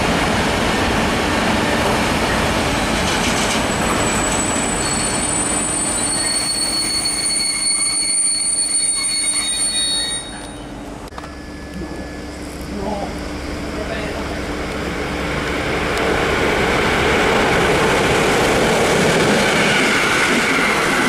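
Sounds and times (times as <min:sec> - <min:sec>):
freight train wheels rumbling on rail: 0:00.0 - 0:21.0
high wheel squeal: 0:03.7 - 0:10.8.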